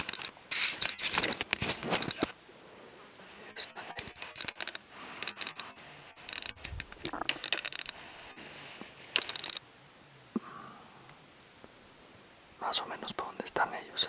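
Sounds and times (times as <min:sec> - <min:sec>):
handling scratching and clicks: 0:00.0 - 0:02.3, 0:03.9 - 0:08.0, 0:09.1 - 0:09.6
low steady hiss: 0:00.0 - 0:14.0.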